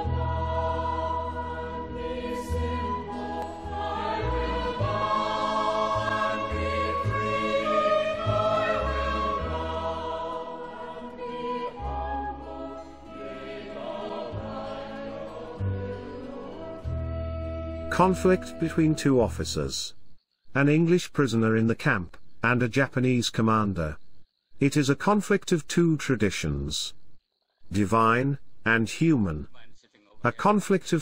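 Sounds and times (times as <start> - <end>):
choir singing hymn-like song: 0.0 - 17.6.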